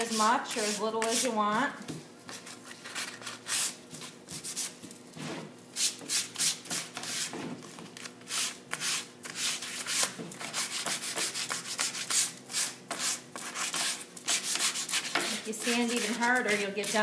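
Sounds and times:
sandpaper scratching on board: 0.0s - 1.4s, 8.3s - 17.0s.

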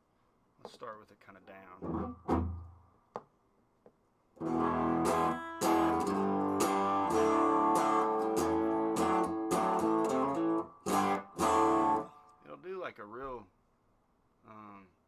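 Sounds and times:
overdriven electric guitar chords: 4.4s - 12.2s.

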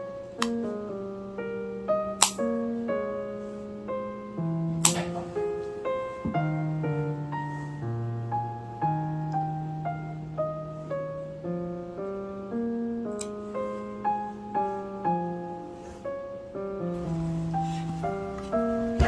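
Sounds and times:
slow piano music: 0.0s - 19.0s.

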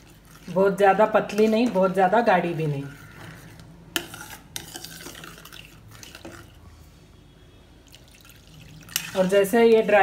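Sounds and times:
spoon stirring thick gravy: 0.0s - 6.7s, 7.9s - 10.0s.

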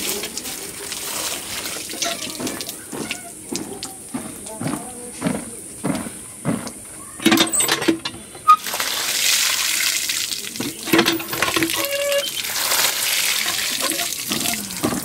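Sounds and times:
water gushing over fruit: 0.0s - 4.5s, 8.5s - 15.0s
pump handle knocks: 7.2s - 8.2s, 10.6s - 12.2s, 13.5s - 15.0s.

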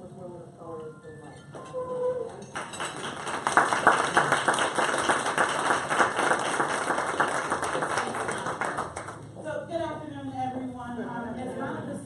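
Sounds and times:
audience applauding: 2.4s - 9.2s.

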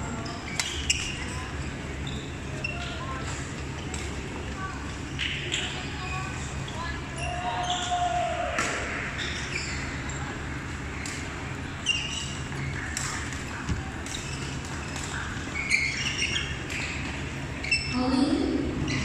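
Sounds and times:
chatter of many people: 0.0s - 19.0s
shoe squeaks on court floor: 0.2s - 3.3s, 11.8s - 13.0s, 14.1s - 18.0s.

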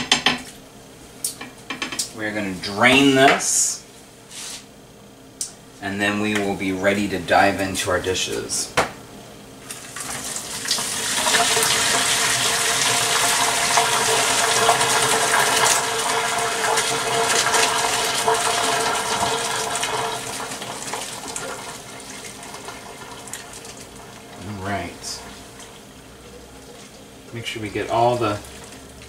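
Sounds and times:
water gushing into sink: 9.8s - 29.0s.

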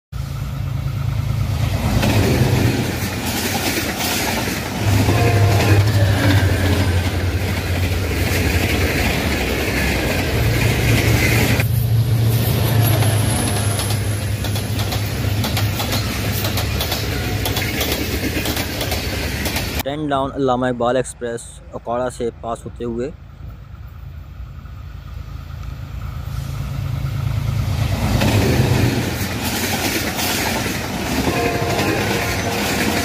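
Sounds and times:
diesel locomotive engine hum: 0.1s - 33.0s
train rumbling on rails: 0.2s - 19.9s, 22.6s - 33.0s.

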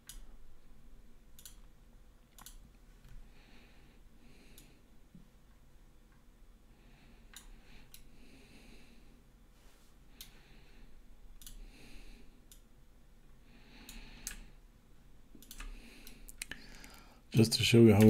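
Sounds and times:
computer mouse clicks: 1.4s - 1.7s, 2.3s - 2.6s, 7.3s - 8.1s, 11.4s - 11.7s, 12.5s - 12.7s, 13.8s - 14.5s, 15.3s - 17.0s
soft breathing: 3.1s - 5.3s, 6.6s - 12.6s, 13.3s - 14.8s, 15.4s - 17.4s.

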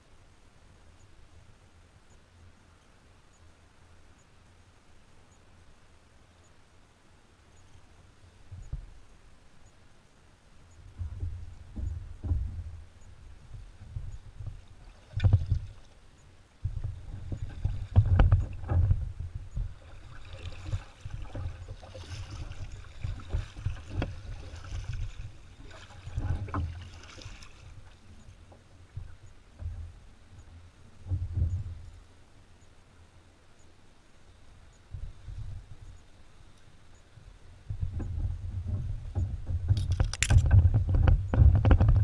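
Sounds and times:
paddle knocking plastic hull: 11.0s - 12.8s, 13.4s - 15.7s, 16.6s - 30.0s, 37.7s - 42.0s
paddle splashing through water: 16.7s - 29.2s.

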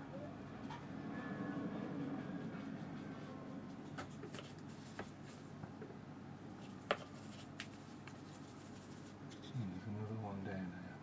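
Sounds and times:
brush scratching on paper: 2.0s - 5.4s, 6.6s - 9.6s.

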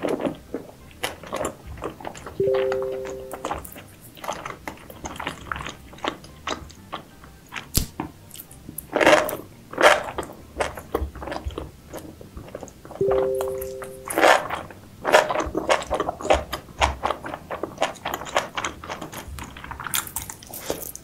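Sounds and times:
crunching and chewing seafood: 0.0s - 21.0s
two-note musical tone: 2.4s - 3.8s, 13.0s - 14.6s.

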